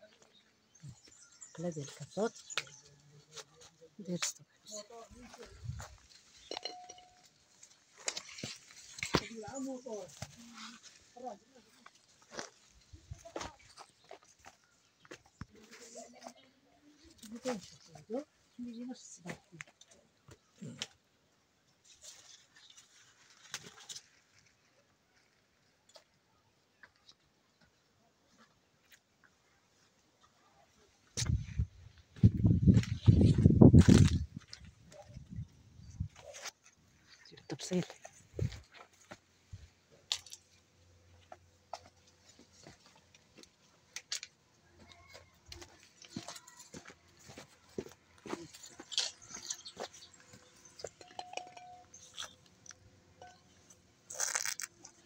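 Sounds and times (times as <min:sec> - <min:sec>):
leaves and branches rustling: 0:01.8 - 0:19.5, 0:21.8 - 0:25.4, 0:31.3 - 0:51.0, 0:53.6 - 0:55.0
footsteps on dry ground: 0:04.7 - 0:06.7, 0:07.8 - 0:16.4, 0:31.0 - 0:51.3
branches crackling: 0:40.0 - 0:55.0.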